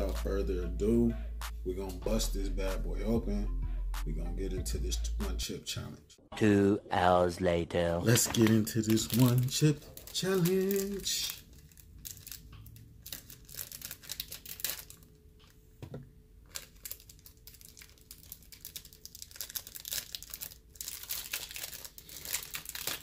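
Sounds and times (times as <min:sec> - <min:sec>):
chip bag crinkling and tearing: 0:08.1 - 0:15.2, 0:16.4 - 0:23.0.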